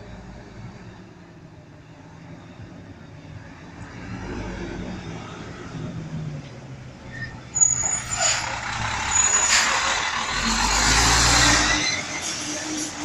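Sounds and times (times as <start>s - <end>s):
brakes squealing and hissing: 7.0s - 13.0s
garbage truck diesel engine droning: 7.4s - 13.0s.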